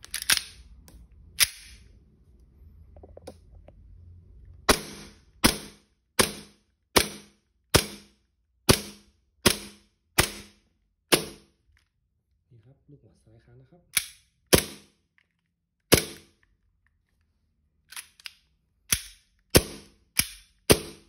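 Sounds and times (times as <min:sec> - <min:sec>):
gas pistol shots: 0:14.0 - 0:14.9.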